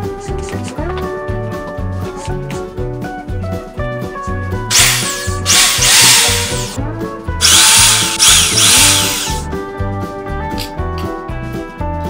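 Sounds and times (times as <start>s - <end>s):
background music: 0.0s - 12.0s
electric drill boring into wood: 4.7s - 6.8s, 7.4s - 9.4s.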